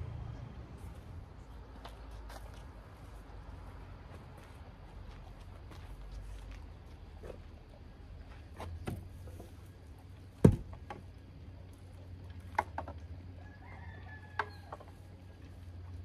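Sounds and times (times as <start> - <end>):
wooden knocks and clunks: 8.6 - 9.6, 10.4 - 11.2, 12.4 - 13.0, 14.4 - 15.0
rooster crowing: 13.4 - 14.8.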